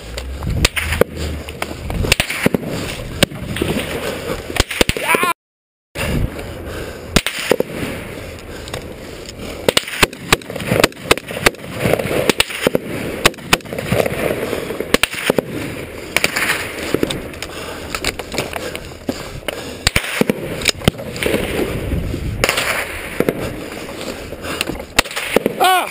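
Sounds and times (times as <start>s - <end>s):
rifle shots: 2.1s - 3.9s, 9.6s - 14.2s, 14.9s - 17.0s, 22.4s - 23.5s, 25.0s - 25.6s.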